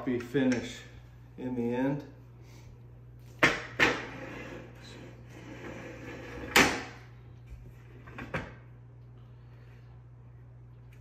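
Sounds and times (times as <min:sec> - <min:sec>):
soft scraping on countertop: 0:04.0 - 0:06.5.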